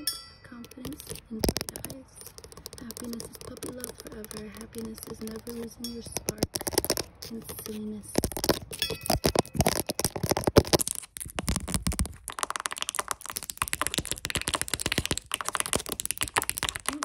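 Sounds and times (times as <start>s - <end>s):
fingernails clicking and tapping: 0.0s - 10.8s
fingers rubbing together: 0.6s - 17.0s.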